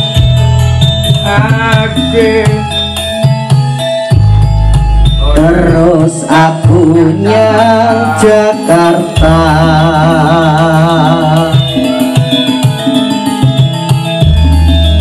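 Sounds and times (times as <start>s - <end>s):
song with heavy bass: 0.0s - 15.0s
wavering sung vocal: 1.2s - 3.0s, 5.1s - 12.1s.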